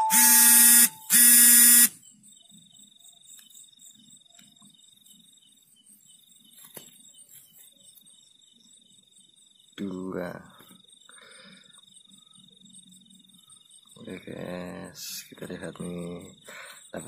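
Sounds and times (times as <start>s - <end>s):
harsh electronic buzzes: 0.0s - 2.0s
night insects trilling: 0.0s - 17.0s.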